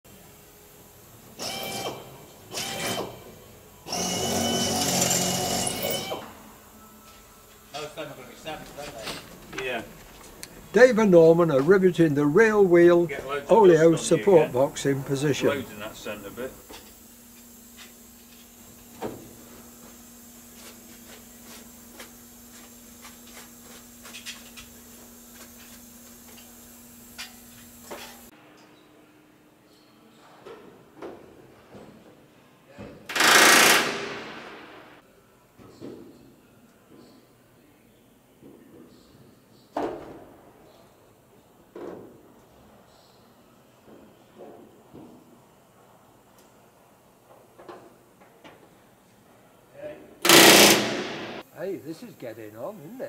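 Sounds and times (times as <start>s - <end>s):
pneumatic rivet gun hammering: 1.4s - 3.3s, 33.1s - 34.7s, 50.2s - 51.4s.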